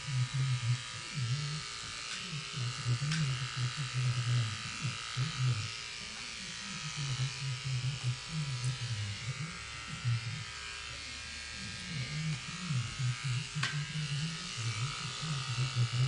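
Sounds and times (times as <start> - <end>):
hair clippers buzzing: 0.0 - 16.0.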